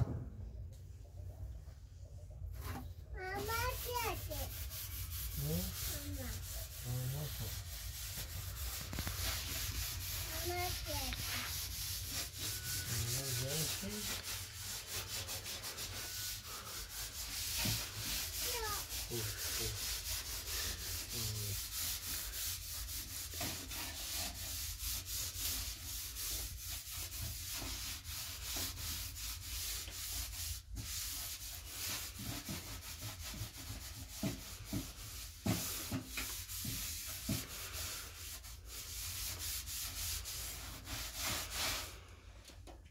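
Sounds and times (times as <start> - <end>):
scrubbing stove top: 2.6 - 42.0.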